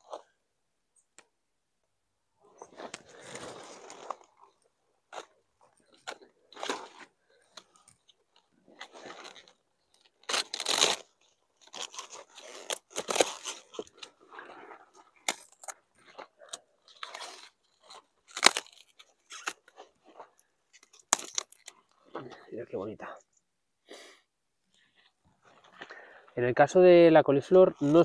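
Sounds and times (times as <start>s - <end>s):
cauliflower crunching and tearing: 2.8s - 22.2s.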